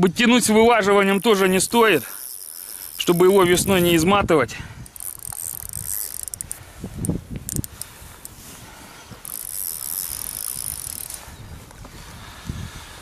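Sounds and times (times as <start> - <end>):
fishing reel whirring and clicking: 0.5 - 4.1, 4.8 - 8.4, 9.1 - 11.5.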